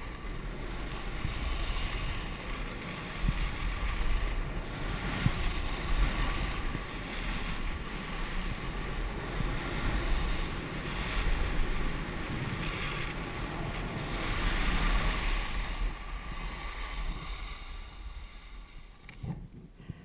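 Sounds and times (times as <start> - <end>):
skis carving on packed snow: 0.0 - 20.0
wind buffeting microphone: 0.0 - 20.0.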